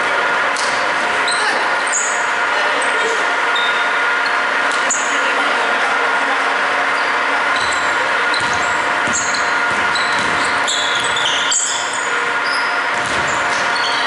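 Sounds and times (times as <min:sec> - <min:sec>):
steady hall hum: 0:00.0 - 0:14.0
sneakers squeaking: 0:00.6 - 0:05.2, 0:06.9 - 0:14.0
basketball bouncing: 0:07.6 - 0:11.8, 0:12.9 - 0:13.9.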